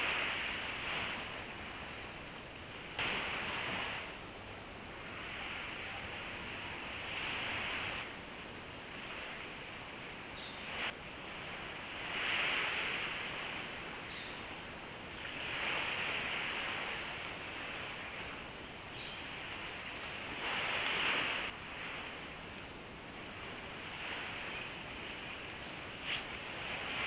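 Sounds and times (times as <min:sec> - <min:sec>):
waves washing onto beach: 0:00.0 - 0:27.0.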